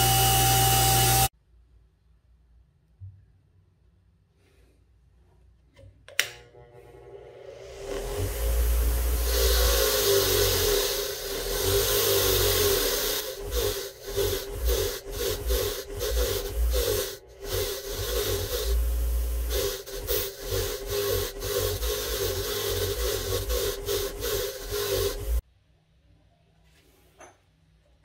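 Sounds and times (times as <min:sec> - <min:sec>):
grinder motor hum: 0:00.0 - 0:01.3, 0:06.2 - 0:25.4.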